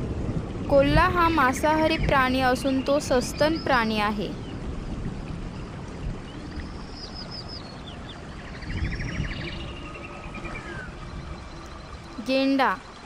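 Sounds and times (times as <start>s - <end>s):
birds chirping and trilling: 1.4s - 4.7s, 5.5s - 13.0s.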